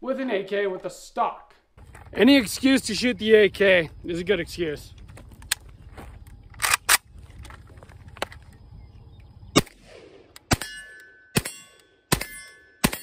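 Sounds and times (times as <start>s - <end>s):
rifle shots: 6.6s - 7.1s, 9.5s - 13.0s.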